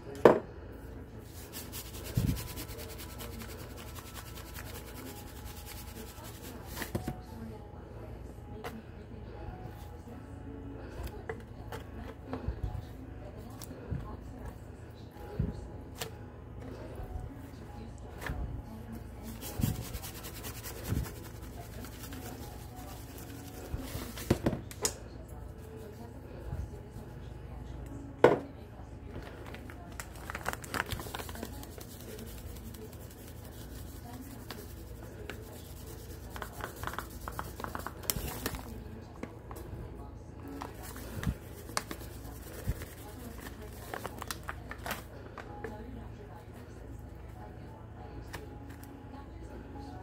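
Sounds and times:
faint paper rustling: 1.2s - 7.5s, 15.3s - 24.5s, 29.1s - 39.7s, 40.4s - 46.6s.

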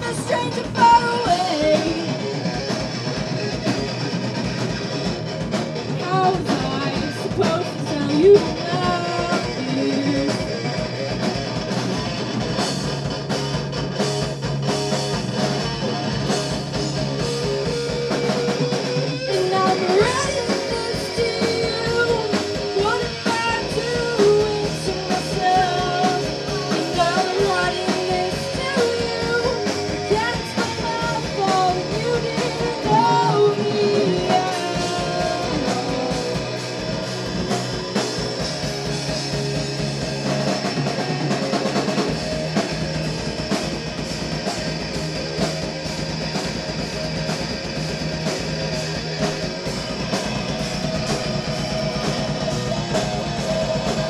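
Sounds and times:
person singing: 0.0s - 2.4s, 6.0s - 10.7s, 19.3s - 36.7s
rock band playing live: 0.0s - 54.0s.

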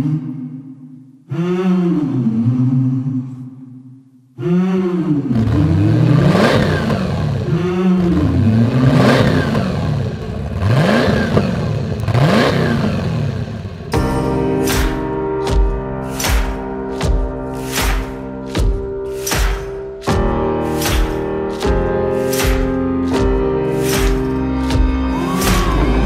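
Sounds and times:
boat engine revving: 5.3s - 13.9s
music: 13.9s - 26.0s.

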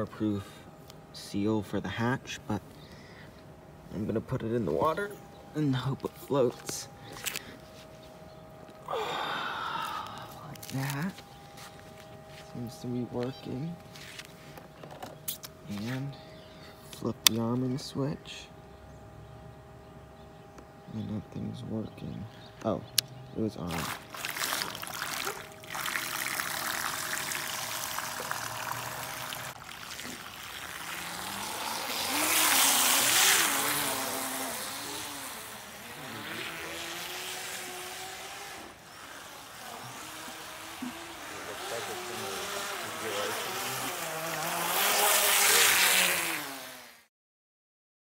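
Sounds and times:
electric motor whine: 4.6s - 16.5s, 23.7s - 47.1s
propeller and water wash: 23.6s - 47.0s.

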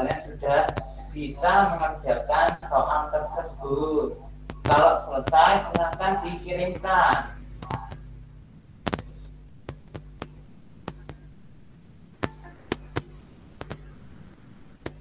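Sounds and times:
low electrical hum: 0.0s - 15.0s
sharp irregular clicks: 4.4s - 8.1s, 8.8s - 11.3s, 12.1s - 14.0s, 14.8s - 15.0s.

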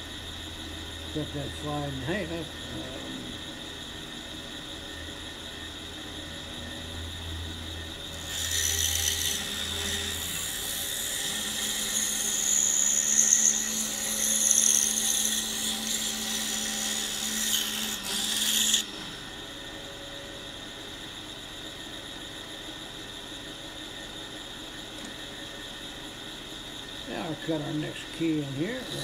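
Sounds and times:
saw blade cutting wood: 8.1s - 19.0s, 28.3s - 29.0s
scroll saw running: 8.1s - 19.3s, 27.1s - 29.0s.

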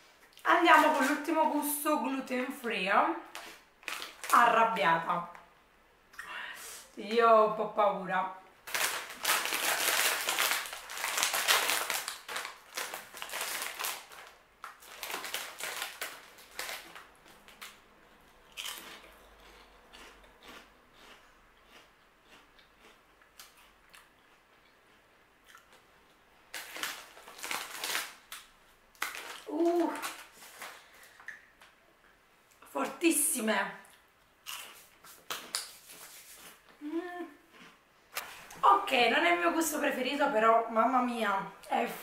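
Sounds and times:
plastic snack bag rustling: 3.3s - 4.5s, 8.6s - 17.8s, 26.5s - 31.2s
crunching while chewing: 18.4s - 31.4s, 33.8s - 36.7s, 37.5s - 38.3s.

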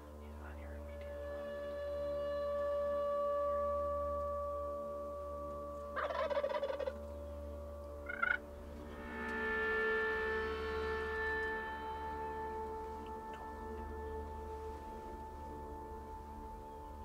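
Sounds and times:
ambient music with held tones: 0.0s - 17.0s
turkey gobbling: 6.0s - 7.1s, 8.0s - 8.4s.

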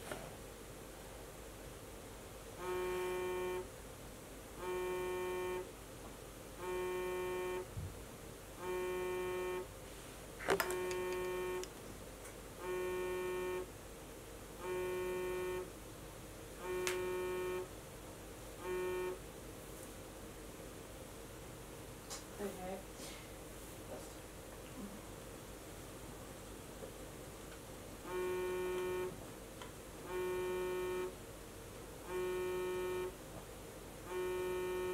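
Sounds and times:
phone vibrating on wooden table: 2.6s - 3.7s, 4.6s - 5.7s, 6.6s - 7.8s, 8.6s - 9.7s, 10.5s - 11.7s, 12.6s - 13.7s, 14.6s - 15.7s, 16.6s - 17.7s, 18.6s - 19.2s, 28.0s - 29.2s, 30.0s - 31.2s, 32.0s - 33.2s, 34.0s - 34.9s.

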